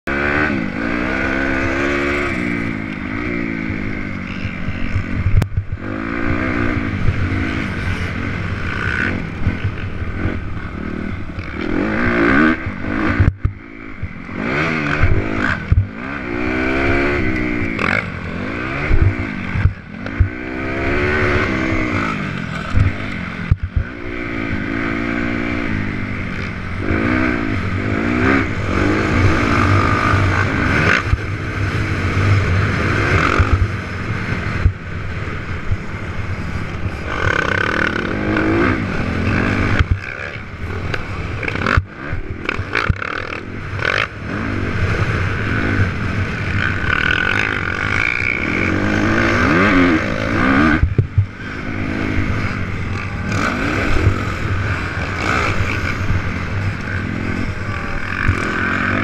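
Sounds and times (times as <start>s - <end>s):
dirt bike engine revving: 0.1s - 59.0s
knocks and clatter from bike: 14.9s - 15.9s, 22.5s - 23.9s, 39.7s - 44.1s, 50.8s - 51.3s.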